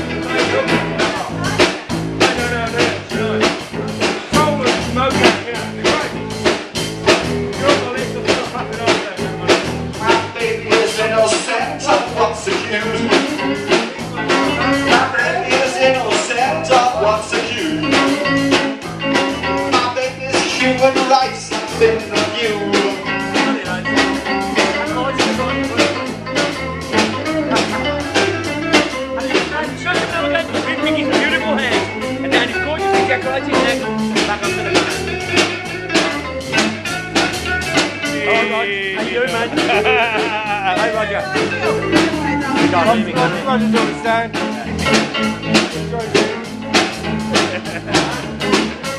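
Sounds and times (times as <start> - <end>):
drum kit beat: 0.0 - 48.9
guitars: 0.0 - 48.9
person singing: 8.2 - 36.7, 38.0 - 45.0.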